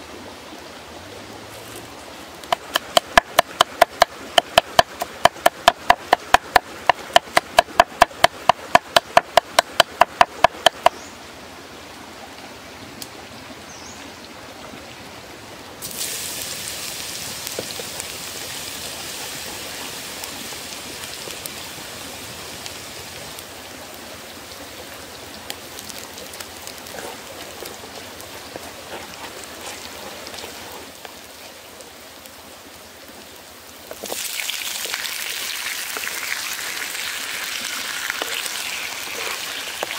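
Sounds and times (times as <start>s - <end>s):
garlic sizzling in hot oil: 15.8s - 23.5s, 33.9s - 39.9s.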